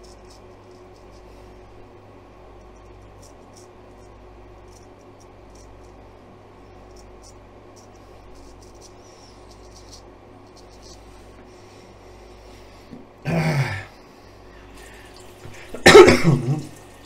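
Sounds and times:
razor scraping over stubble: 2.7s - 12.8s
throat clearing: 13.2s - 13.9s, 15.7s - 16.7s.

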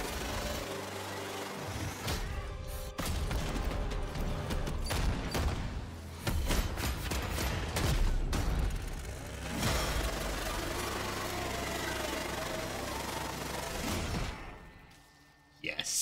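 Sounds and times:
impacts and metallic clangs: 1.8s - 10.6s.

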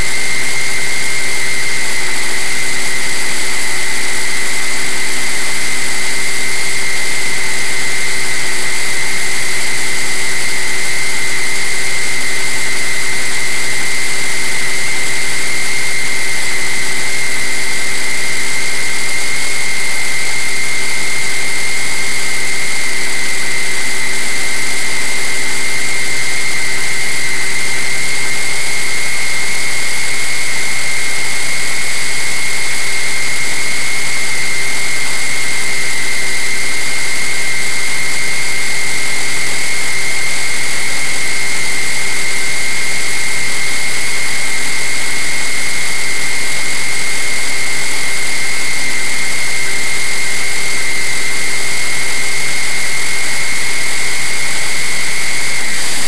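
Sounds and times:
motor and propeller whine: 55.7s - 56.0s.

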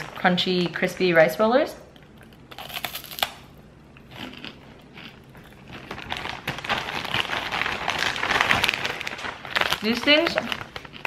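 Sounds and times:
crunchy snack chewing: 2.1s - 8.9s
plastic bag crinkling: 4.1s - 11.0s.

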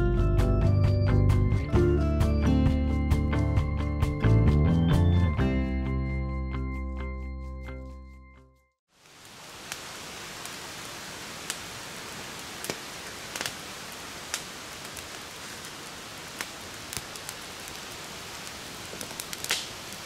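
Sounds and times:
campfire hissing: 8.9s - 20.0s
fire crackles and pops: 8.9s - 20.0s.

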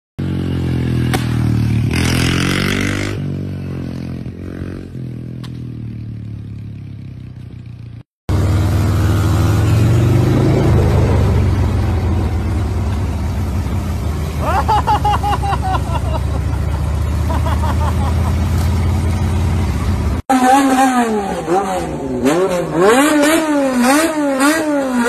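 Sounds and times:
dirt bike engine revving: 0.2s - 5.0s, 19.4s - 25.0s.

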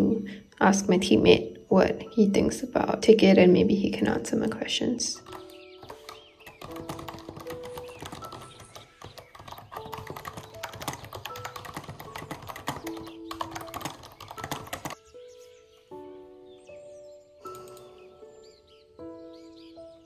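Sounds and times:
fast typing on keyboard: 5.2s - 15.0s, 17.5s - 17.9s.

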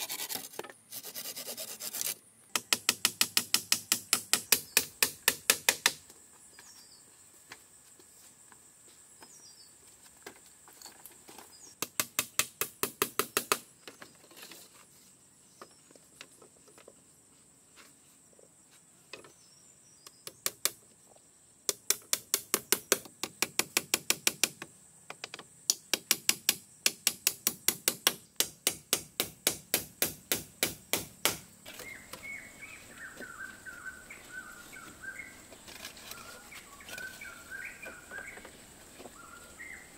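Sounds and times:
rapid hammering: 25.7s - 31.5s
birds chirping: 31.7s - 39.9s.

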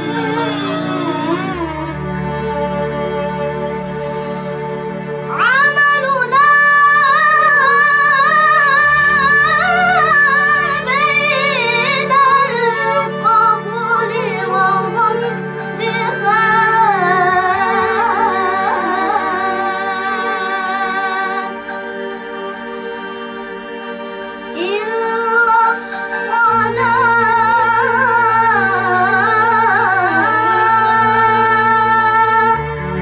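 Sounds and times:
girl singing with vibrato: 5.3s - 21.5s.

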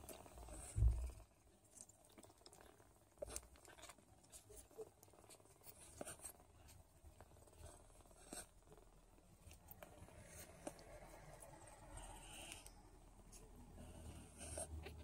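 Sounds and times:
kittens suckling wet clicks: 0.0s - 15.0s
low thump: 0.8s - 1.1s.

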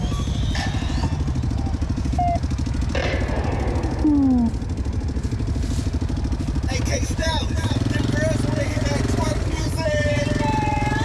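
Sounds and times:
atv engines idling: 0.0s - 11.0s
falling tone: 3.0s - 5.2s.

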